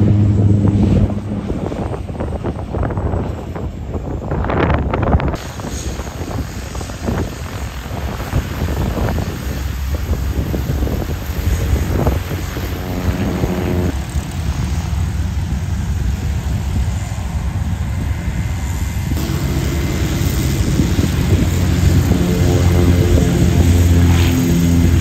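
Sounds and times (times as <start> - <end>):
propeller plane engines: 0.0 - 25.0.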